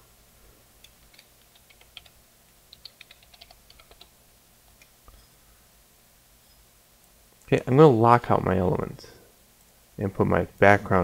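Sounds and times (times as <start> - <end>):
typing on a computer keyboard: 0.8 - 4.2.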